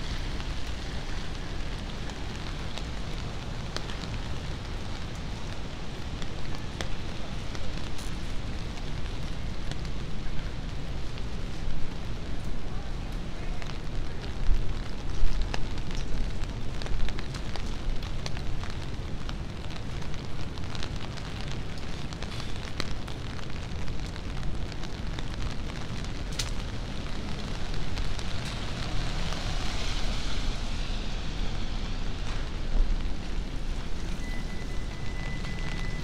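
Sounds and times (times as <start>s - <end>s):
low city rumble: 0.0s - 36.0s
small ticks and drips: 11.0s - 28.6s.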